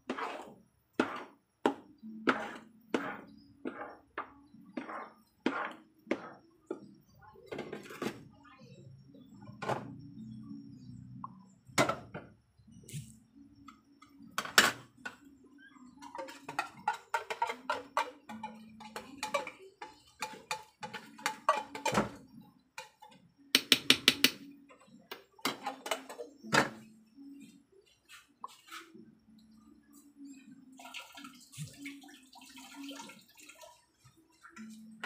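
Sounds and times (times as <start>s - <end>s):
utensil scraping cooking pan: 0.0s - 6.9s, 15.9s - 23.2s.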